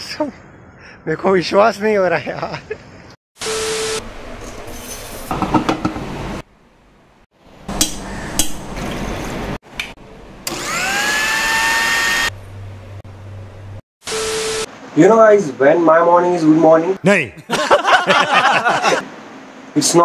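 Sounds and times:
mixer grinder motor whining: 0:10.4 - 0:12.3.

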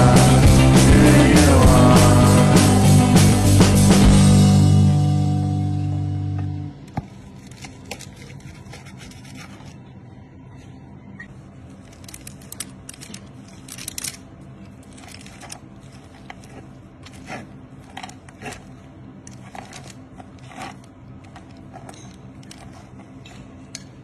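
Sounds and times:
steady low hum: 0:00.0 - 0:24.0
knife and fork cutting crusty meat: 0:07.5 - 0:09.7.

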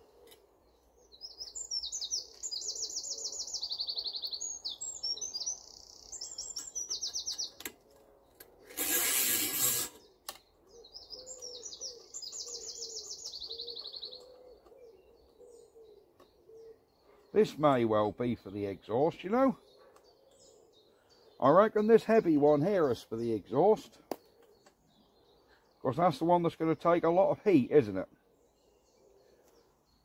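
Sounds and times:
songbird trilling: 0:01.0 - 0:07.6, 0:09.0 - 0:25.5
burst of hissing noise: 0:08.7 - 0:10.0.

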